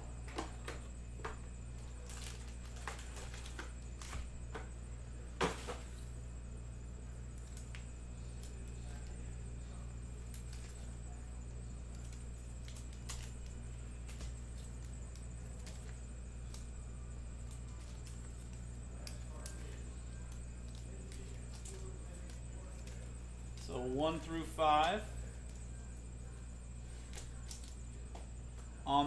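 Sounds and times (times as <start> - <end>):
foil pack crinkle: 1.7 - 4.3, 10.1 - 28.0
paper rustling: 1.7 - 4.3.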